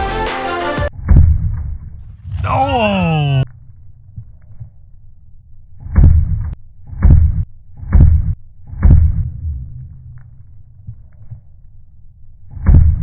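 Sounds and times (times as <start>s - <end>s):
deep slowed-down thuds: 0.9s - 2.4s, 5.8s - 11.4s, 12.5s - 13.0s.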